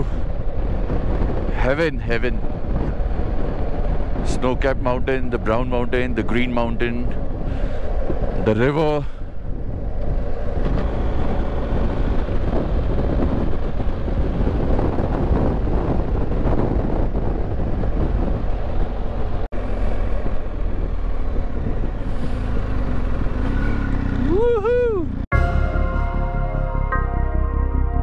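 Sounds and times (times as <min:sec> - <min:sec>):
wind rushing on microphone: 0:00.0 - 0:25.3
motorcycle engine running: 0:09.4 - 0:26.9.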